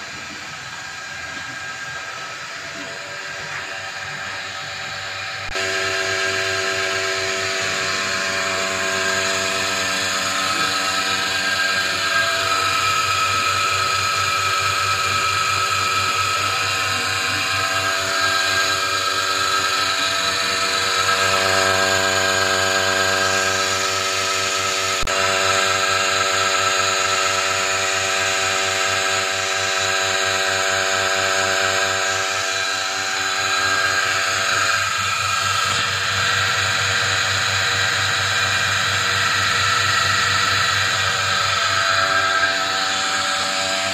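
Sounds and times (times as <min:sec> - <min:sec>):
vacuum pump humming: 0:00.0 - 0:43.9.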